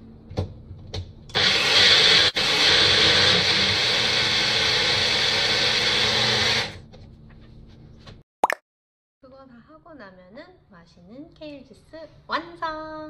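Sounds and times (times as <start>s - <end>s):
blender motor running: 1.3s - 6.8s.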